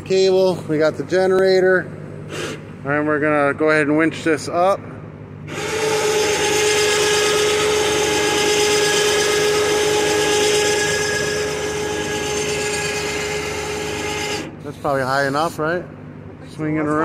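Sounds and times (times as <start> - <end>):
electric winch motor whining: 5.5 - 14.7.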